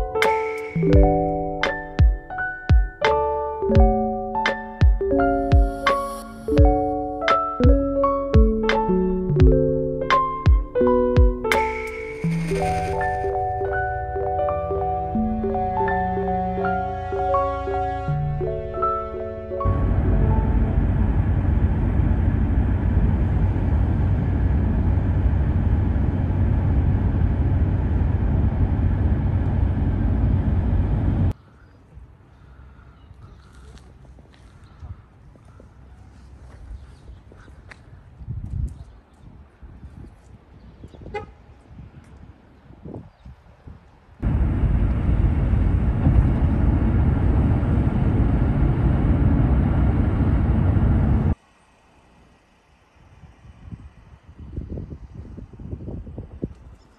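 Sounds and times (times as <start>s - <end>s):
road and wind noise in car: 12.4s - 31.4s, 33.8s - 56.9s
car interior road rumble: 19.6s - 31.4s, 44.2s - 51.4s.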